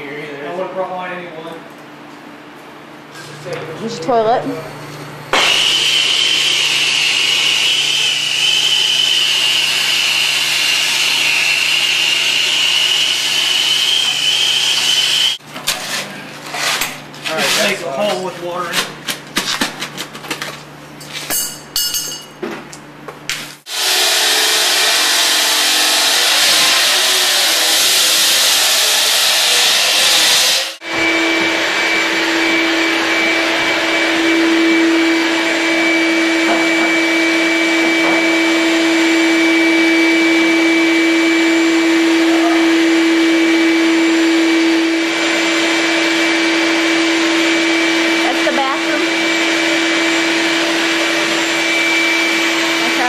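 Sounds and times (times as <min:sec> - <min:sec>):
electric motor whine: 0:05.3 - 0:15.4, 0:23.7 - 0:53.0.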